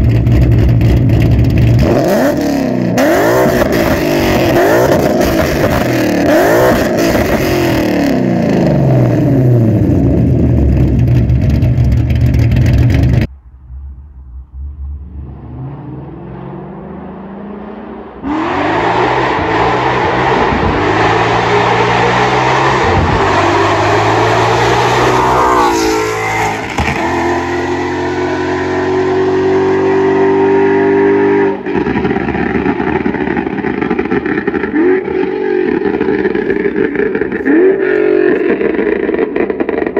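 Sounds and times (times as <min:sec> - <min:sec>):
car engine revving: 0:00.0 - 0:39.9.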